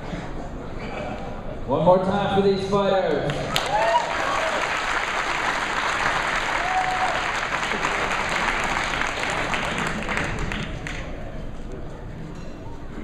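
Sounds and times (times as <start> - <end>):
crowd applauding: 3.3 - 11.2.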